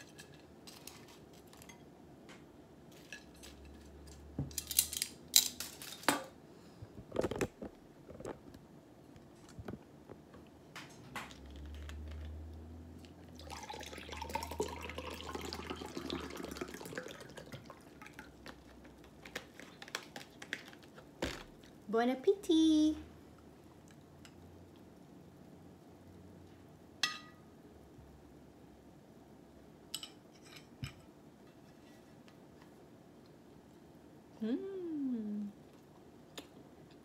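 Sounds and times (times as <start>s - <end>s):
juice pouring into a glass: 13.2s - 18.4s.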